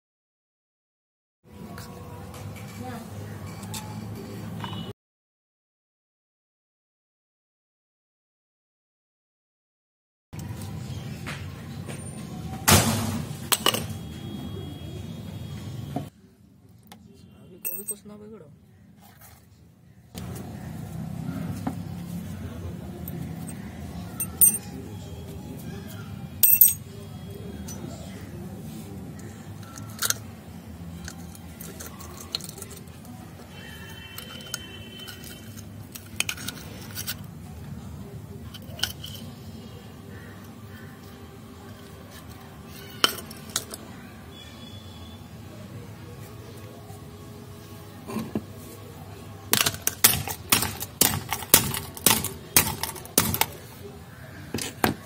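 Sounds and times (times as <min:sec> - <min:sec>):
metallic clinks: 0:17.6 - 0:18.1, 0:24.2 - 0:24.7, 0:26.4 - 0:26.8
padlock scraping on concrete: 0:30.9 - 0:37.3, 0:38.4 - 0:39.5, 0:49.6 - 0:53.6.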